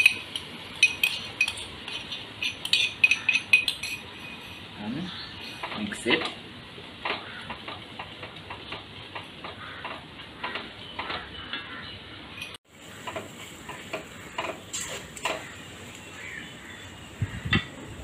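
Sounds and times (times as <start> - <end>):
food sizzling: 12.6 - 18.0.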